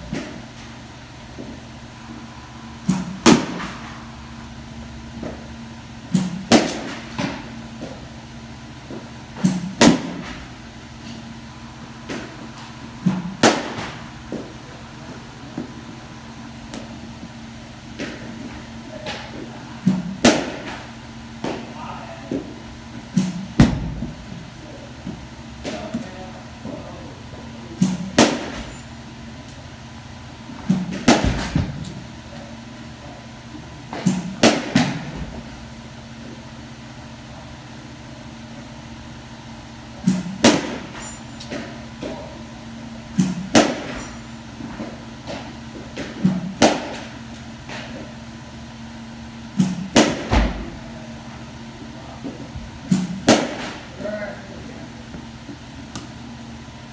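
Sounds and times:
steady low hum: 0:00.0 - 0:56.9
bat hitting softballs: 0:02.8 - 0:03.9, 0:06.2 - 0:08.0, 0:09.4 - 0:10.5, 0:13.1 - 0:14.5, 0:19.9 - 0:22.5, 0:27.8 - 0:28.8, 0:30.7 - 0:31.8, 0:34.0 - 0:35.1, 0:40.0 - 0:42.2, 0:43.2 - 0:44.2, 0:44.8 - 0:47.9, 0:49.6 - 0:50.6, 0:52.8 - 0:53.9.

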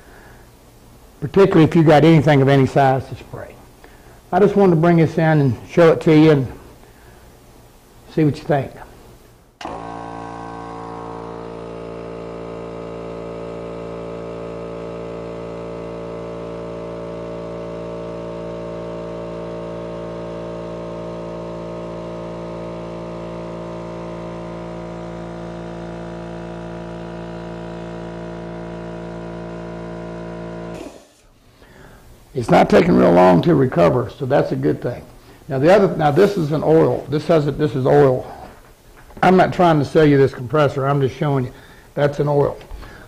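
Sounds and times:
air compressor running: 0:00.0 - 0:00.6, 0:09.5 - 0:33.5, 0:34.5 - 0:39.9, 0:41.5 - 0:43.0.

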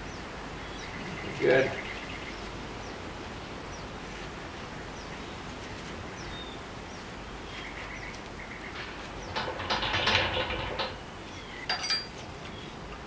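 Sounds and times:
background hiss: 0:00.0 - 0:13.0
metal parts clinking and rattling: 0:09.3 - 0:11.0, 0:11.6 - 0:12.2.

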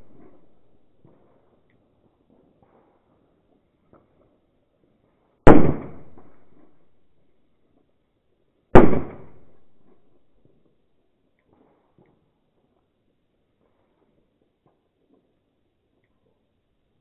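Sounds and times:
loud firecracker bangs: 0:00.0 - 0:00.6, 0:05.4 - 0:06.7, 0:08.8 - 0:10.0.

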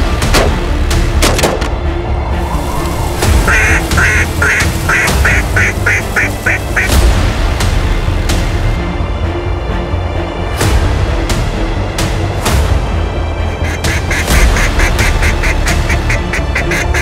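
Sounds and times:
background music: 0:00.0 - 0:17.0
duck call quacking: 0:03.5 - 0:07.0, 0:13.6 - 0:17.0.

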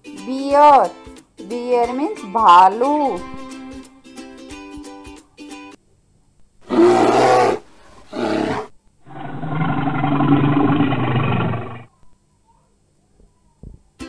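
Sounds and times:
bear roaring: 0:06.6 - 0:11.9.

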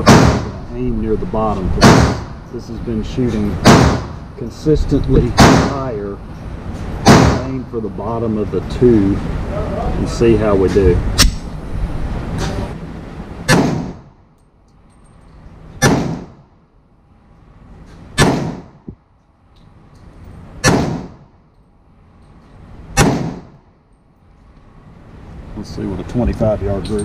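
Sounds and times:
pistol gunshots indoors: 0:00.0 - 0:00.6, 0:01.8 - 0:02.3, 0:03.6 - 0:04.2, 0:05.4 - 0:05.8, 0:07.0 - 0:07.5, 0:13.5 - 0:14.1, 0:15.8 - 0:16.5, 0:18.2 - 0:18.8, 0:20.6 - 0:21.3, 0:23.0 - 0:23.6.

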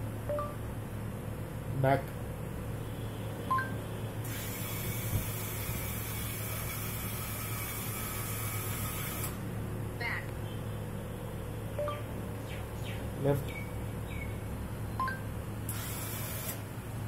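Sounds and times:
two-tone chirp: 0:00.3 - 0:00.6, 0:03.4 - 0:03.9, 0:11.7 - 0:15.3
small motors whirring: 0:04.2 - 0:09.4, 0:15.7 - 0:16.7.

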